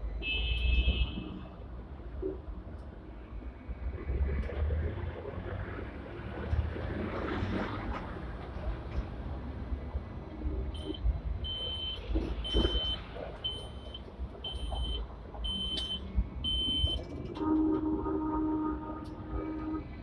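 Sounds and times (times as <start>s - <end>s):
tram rumbling over points: 10.7s - 20.0s
high electronic beep: 10.8s - 17.0s
low steady multi-pitch tone: 12.6s - 20.0s.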